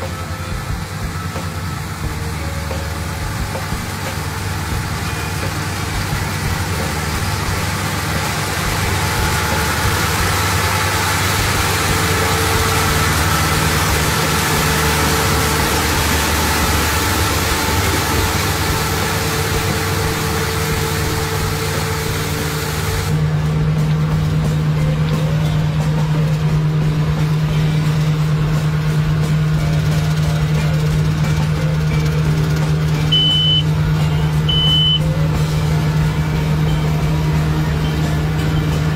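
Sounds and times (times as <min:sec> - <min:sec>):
hiss of crop and straw: 0:00.0 - 0:23.4
combine harvester running: 0:00.0 - 0:38.9.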